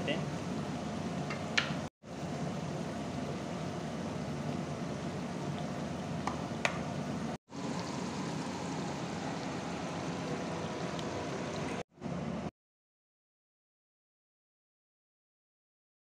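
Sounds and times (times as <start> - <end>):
food sizzling and bubbling in pan: 0.2 - 11.9.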